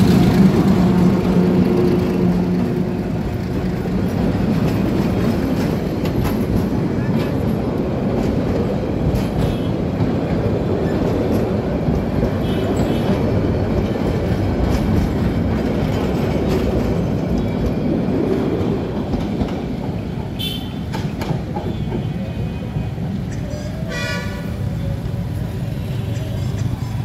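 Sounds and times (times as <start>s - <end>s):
clickety-clack over rail joints: 0.0s - 27.0s
train wheels rumbling on track: 0.0s - 27.0s.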